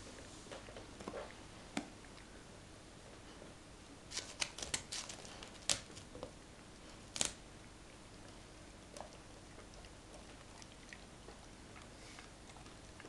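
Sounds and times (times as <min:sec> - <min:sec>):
dog chewing food: 0:07.8 - 0:13.0.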